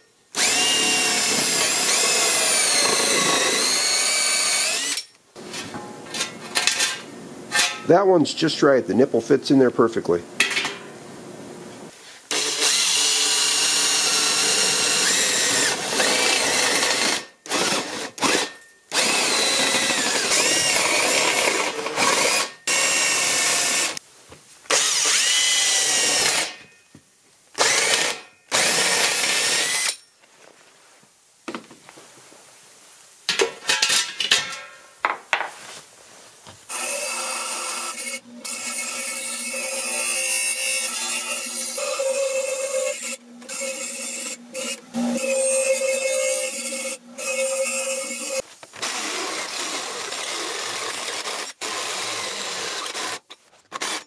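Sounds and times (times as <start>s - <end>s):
power drill cutting thin metal: 0.4s - 5.2s, 12.3s - 24.0s, 24.7s - 26.7s, 27.6s - 30.1s, 36.7s - 54.0s
bench grinder running: 0.4s - 5.6s, 12.3s - 24.0s, 36.7s - 53.2s.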